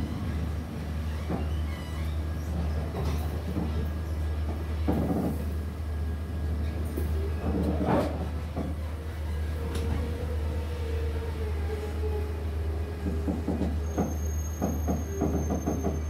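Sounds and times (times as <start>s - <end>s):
train rumbling on track: 0.0s - 16.0s
train clattering knocks: 4.5s - 5.4s, 13.0s - 16.0s.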